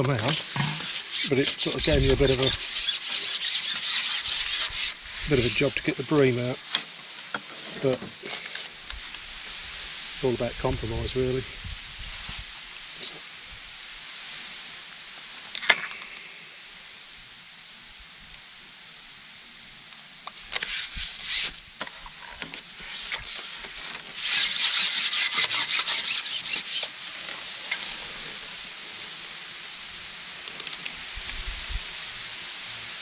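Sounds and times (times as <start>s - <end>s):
fishing pole sections rasping: 0.0s - 6.8s, 20.4s - 21.6s, 22.2s - 28.1s.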